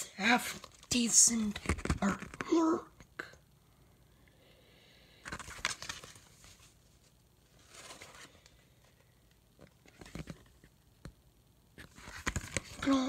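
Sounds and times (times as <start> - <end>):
comic book pages rustling: 0.5 - 2.6, 5.2 - 9.0, 9.6 - 10.8, 11.8 - 13.0.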